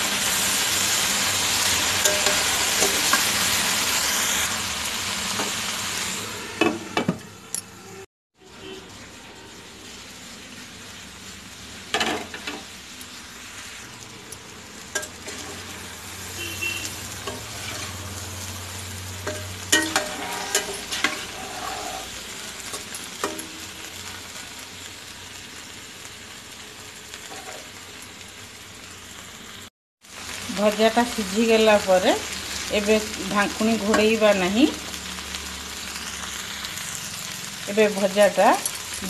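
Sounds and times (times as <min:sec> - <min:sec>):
vegetables sizzling in oil: 0:00.0 - 0:07.0, 0:08.4 - 0:39.0
steel spatula scraping pan: 0:15.0 - 0:15.8, 0:17.2 - 0:18.1, 0:19.2 - 0:23.5.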